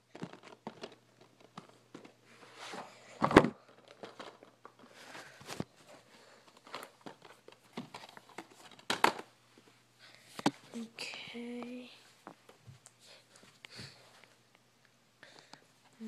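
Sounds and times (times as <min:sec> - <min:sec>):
plastic cases clicking and rustling: 0:00.0 - 0:09.3.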